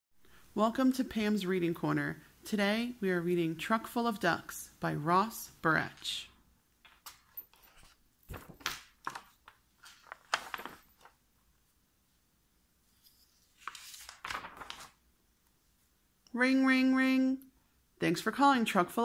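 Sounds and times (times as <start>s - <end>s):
book pages turning: 7.0s - 11.2s, 13.0s - 15.0s.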